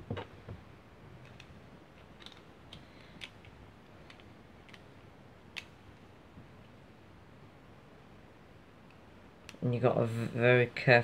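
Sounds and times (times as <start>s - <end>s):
small plastic clicks: 1.2s - 5.8s.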